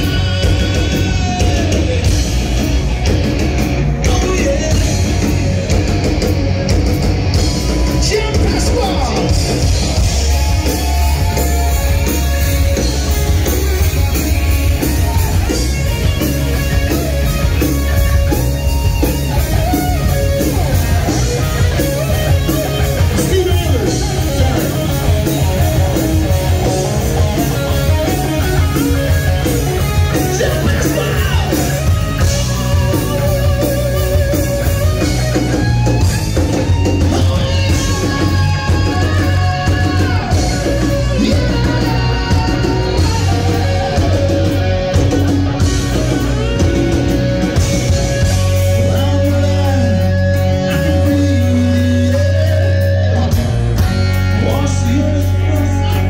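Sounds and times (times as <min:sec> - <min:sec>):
person singing: 0:00.0 - 0:02.4, 0:36.8 - 0:56.0
live rock band playing: 0:00.0 - 0:56.0.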